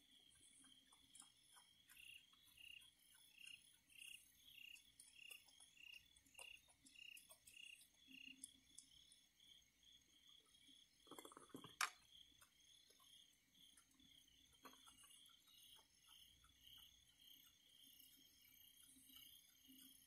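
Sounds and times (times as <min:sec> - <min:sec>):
insect pulsing chirp: 0:00.0 - 0:20.0
night insects trilling: 0:00.0 - 0:20.0
faint clicks: 0:00.4 - 0:09.1.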